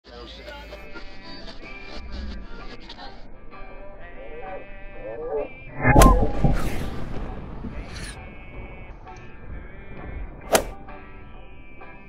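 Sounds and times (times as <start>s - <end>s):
faint background music: 0.1s - 12.0s
firecracker blast: 5.8s - 8.2s.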